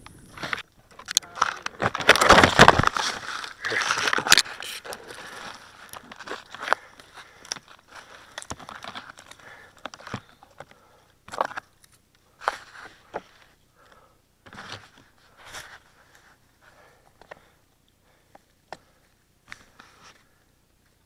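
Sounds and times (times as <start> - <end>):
branches rustling against camera: 0.1 - 13.6
twigs snapping: 0.4 - 12.6.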